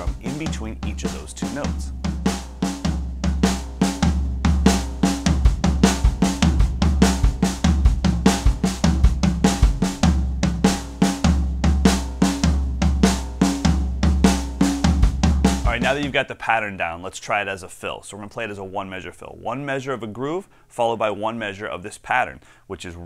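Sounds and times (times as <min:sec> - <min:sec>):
drum strokes with sticks: 0:00.0 - 0:16.2
kick drum: 0:01.8 - 0:16.2.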